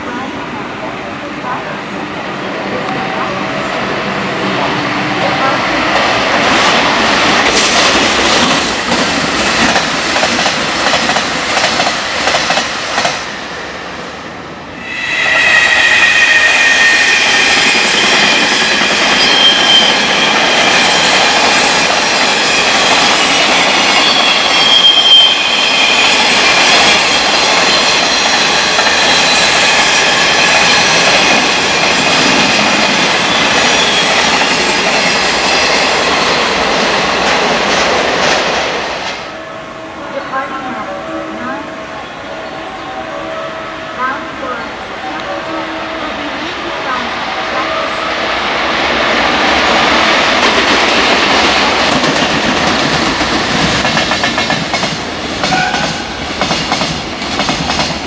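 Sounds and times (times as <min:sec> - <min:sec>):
freight train wheels clacking: 0:04.6 - 0:13.4, 0:49.1 - 0:58.0
high wheel squeal: 0:14.8 - 0:21.2, 0:24.0 - 0:26.3.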